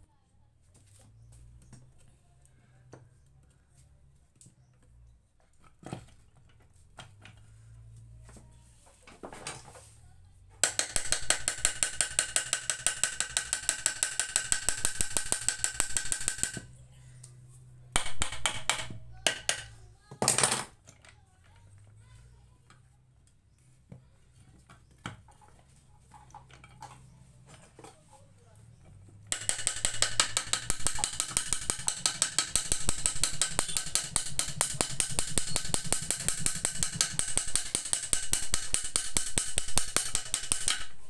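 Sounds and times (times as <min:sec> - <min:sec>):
ratchet wrench clicking: 0:10.6 - 0:16.7, 0:29.3 - 0:41.0.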